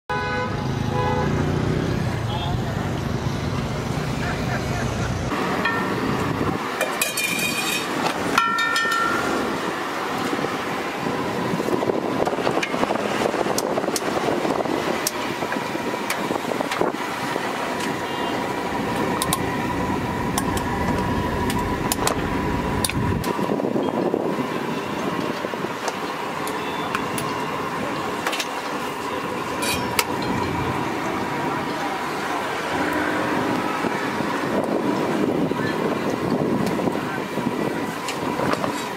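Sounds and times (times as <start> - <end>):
busy food stall: 0.1 - 38.9
traffic: 0.1 - 38.9
metal spatula clinking on griddle: 7.0 - 9.2.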